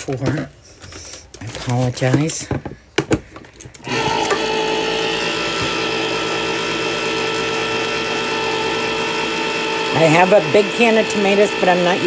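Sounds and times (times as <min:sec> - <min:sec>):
electric can opener motor hum: 0:03.8 - 0:12.0.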